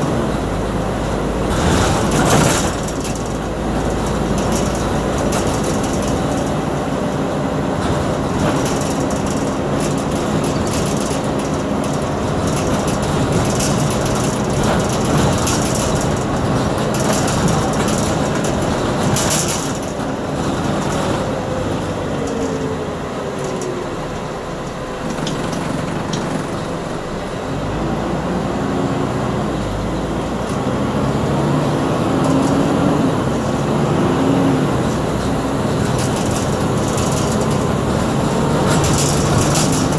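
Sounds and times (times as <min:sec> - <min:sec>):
bus diesel engine and road noise: 0:00.0 - 0:39.9
rattles: 0:00.3 - 0:27.4, 0:34.6 - 0:39.9.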